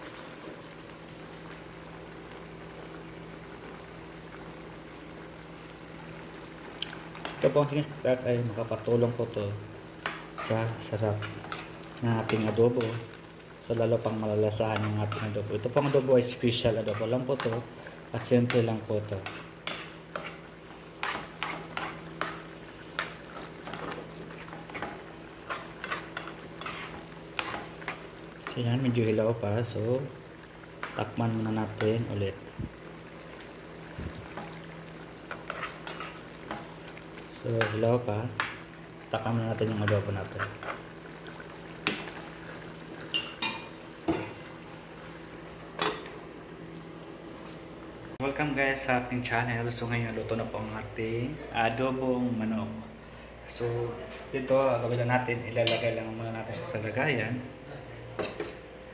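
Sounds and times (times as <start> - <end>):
metal spoon scraping a pan: 11.2 - 13.0, 16.8 - 17.6, 19.2 - 24.0, 24.7 - 28.0, 35.3 - 36.6.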